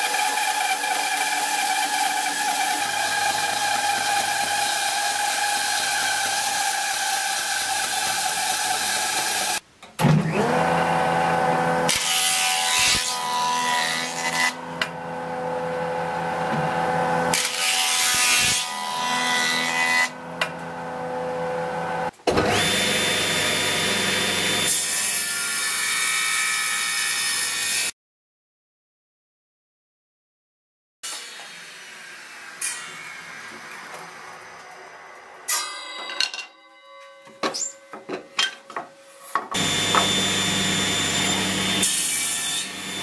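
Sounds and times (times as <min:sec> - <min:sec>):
board rushing over cutter: 0:14.8 - 0:18.9, 0:39.5 - 0:43.0
jointer motor hum: 0:39.6 - 0:42.0.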